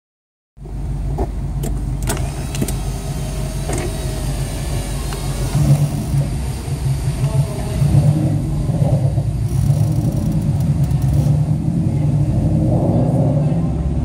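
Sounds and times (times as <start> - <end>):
car exhaust rumble: 0.6 - 14.0
sharp exhaust pops: 9.4 - 11.5.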